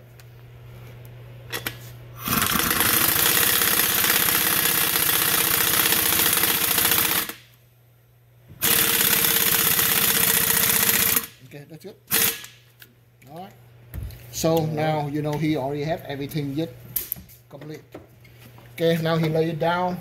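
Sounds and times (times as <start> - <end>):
pneumatic impact wrench hammering: 1.5 - 7.4, 8.6 - 11.4, 12.1 - 12.6.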